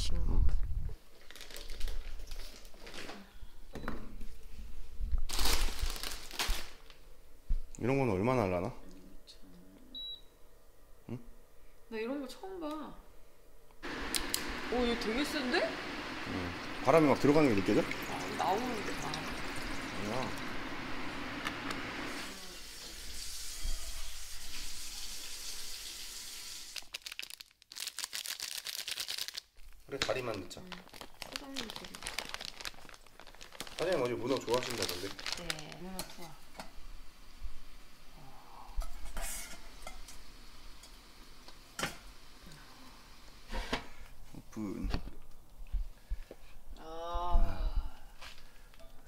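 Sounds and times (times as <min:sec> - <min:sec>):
plastic packaging crinkling: 0:01.1 - 0:03.2, 0:05.3 - 0:07.0, 0:26.7 - 0:36.0
steady hiss: 0:13.8 - 0:26.8
water poured into a pot: 0:15.8 - 0:26.8.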